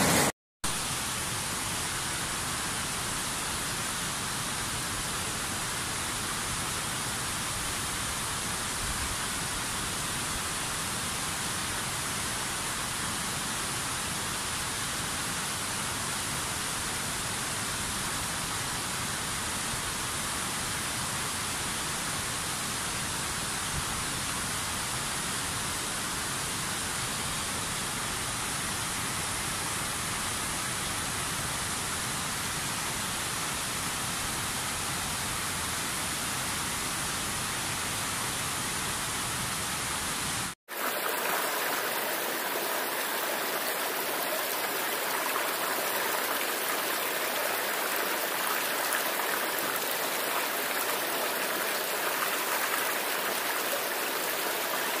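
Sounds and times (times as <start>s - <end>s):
waterfall rushing: 0.0s - 0.3s, 40.7s - 55.0s.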